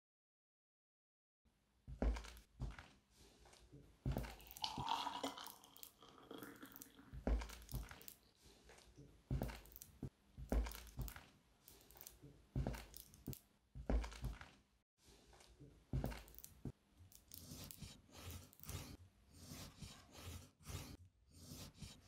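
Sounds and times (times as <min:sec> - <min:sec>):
footsteps on wooden floor: 0:01.9 - 0:05.0, 0:07.1 - 0:14.6, 0:15.4 - 0:16.8.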